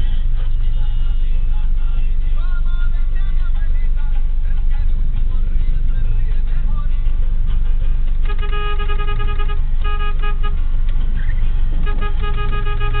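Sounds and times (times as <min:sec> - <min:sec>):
car engine rumble and road noise: 0:00.0 - 0:13.0
car horn honking: 0:08.2 - 0:10.7, 0:11.8 - 0:13.0.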